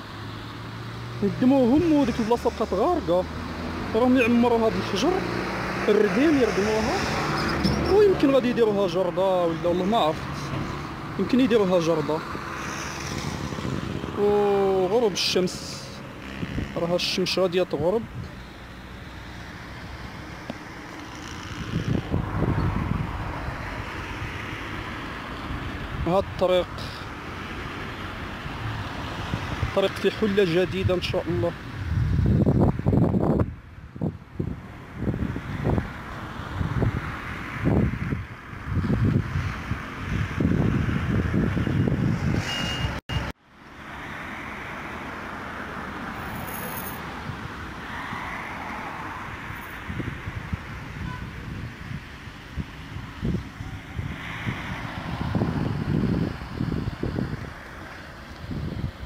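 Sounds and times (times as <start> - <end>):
cars driving past: 0.0 - 59.0
outdoor background noise: 0.0 - 59.0
wind buffeting microphone: 21.5 - 24.5, 31.7 - 43.0, 49.8 - 59.0.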